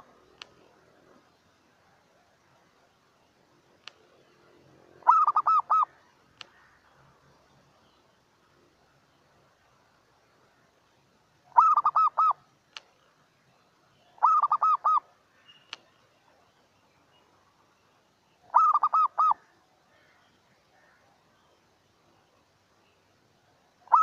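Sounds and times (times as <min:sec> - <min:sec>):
faint clicks: 0:00.3 - 0:00.7, 0:03.8 - 0:04.2, 0:06.3 - 0:06.6, 0:12.7 - 0:13.1, 0:15.6 - 0:16.0
dove cooing: 0:04.8 - 0:06.0, 0:11.5 - 0:12.4, 0:14.2 - 0:15.1, 0:18.5 - 0:20.2.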